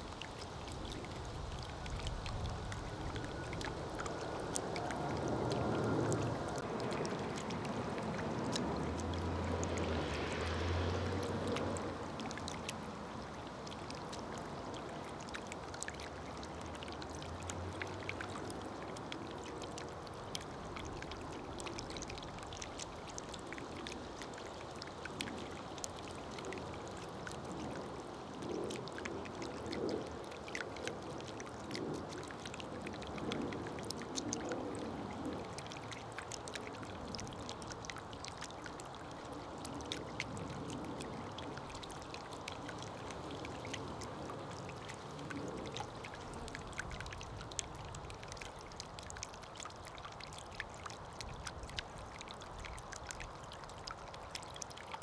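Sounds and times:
water trickling: 0.0s - 55.0s.

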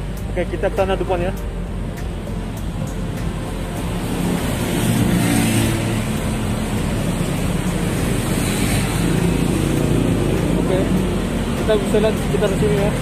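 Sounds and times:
cars passing close by: 0.0s - 13.0s.

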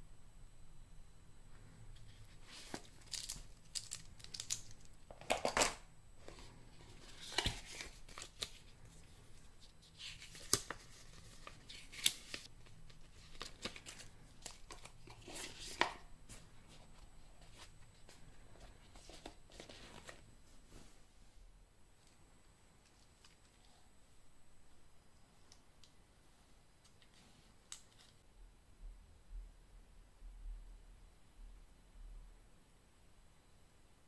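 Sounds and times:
packaging rustling and crinkling: 2.0s - 20.3s.

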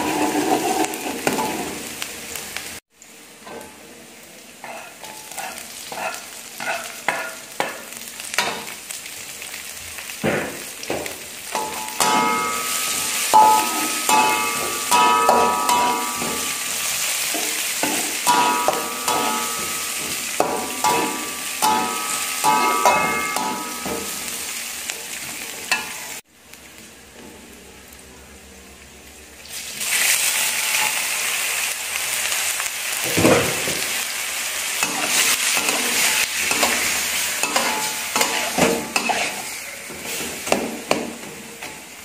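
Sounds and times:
metal spatula scraping a wok: 0.0s - 1.9s, 4.6s - 7.8s, 11.6s - 24.5s, 34.8s - 41.8s
food sizzling in hot oil: 0.0s - 28.0s, 28.8s - 42.0s
wok ringing: 3.4s - 3.9s, 4.6s - 8.8s, 11.5s - 26.2s, 34.8s - 41.8s.

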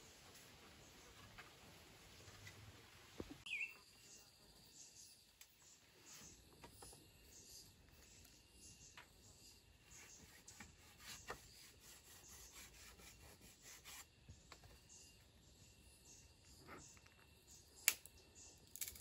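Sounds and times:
scraping on bamboo poles: 9.9s - 14.1s.

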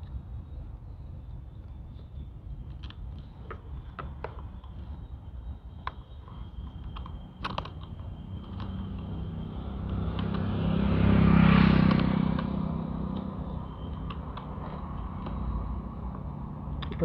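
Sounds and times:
vehicle passing by: 8.3s - 17.0s.

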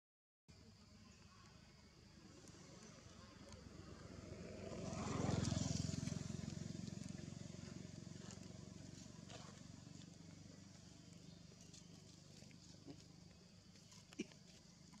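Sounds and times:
vehicle engine passing by: 2.0s - 13.7s.

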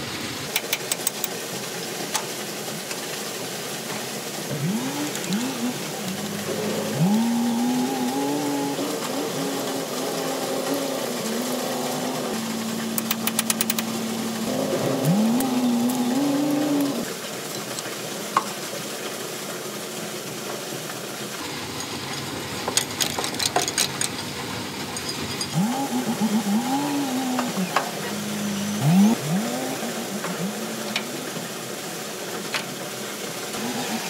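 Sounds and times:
engine revving: 4.4s - 17.1s, 25.4s - 31.4s, 33.5s - 34.0s.

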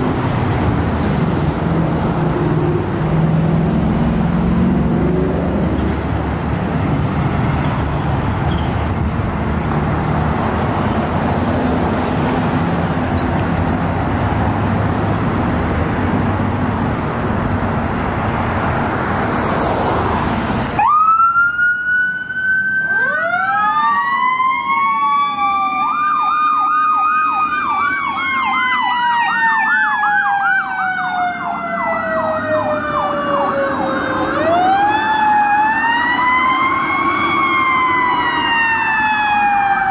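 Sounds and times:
traffic and engine rumble: 0.0s - 39.9s
electronic siren wailing and yelping: 20.8s - 39.9s.

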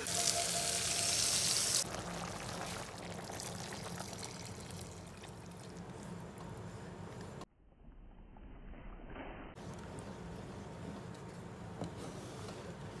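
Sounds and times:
liquid hissing in hot wok: 0.0s - 3.7s
liquid pouring: 0.0s - 5.8s.

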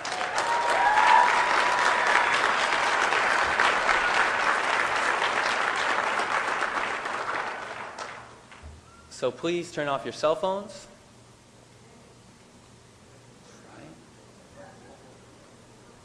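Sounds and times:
whoop rising in pitch: 0.0s - 2.6s
audience applause: 0.0s - 8.4s.

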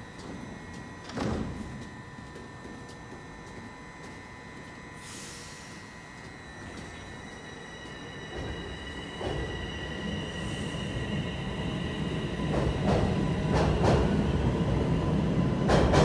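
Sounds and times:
train low rumble: 0.0s - 16.0s
train air hiss: 5.0s - 6.0s, 10.3s - 11.1s.

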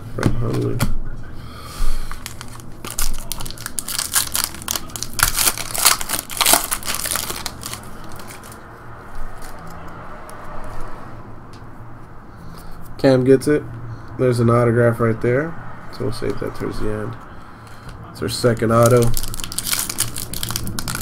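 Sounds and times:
foil wrapper crinkling and tearing: 2.1s - 8.6s, 18.6s - 21.0s.

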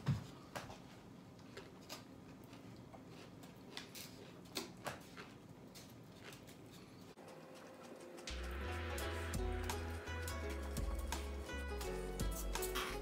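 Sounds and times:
person chewing and biting: 0.6s - 7.8s.

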